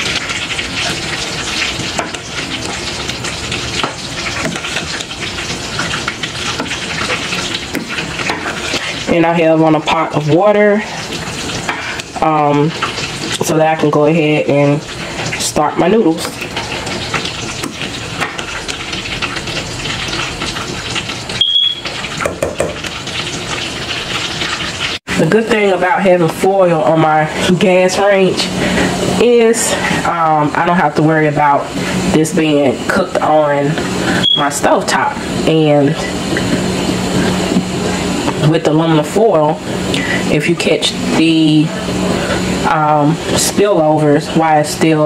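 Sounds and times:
high-pitched beep: 21.4s - 21.8s, 34.2s - 34.5s.

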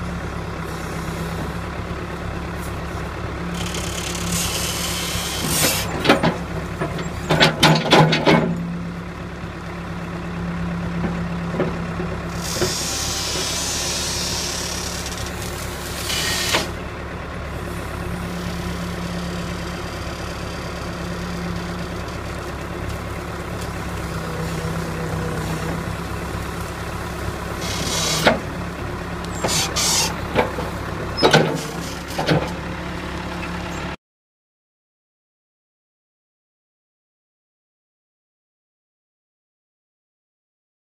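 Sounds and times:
diesel engine running: 0.0s - 34.0s
sharp knocks and clanks: 5.5s - 8.6s, 29.4s - 32.6s.

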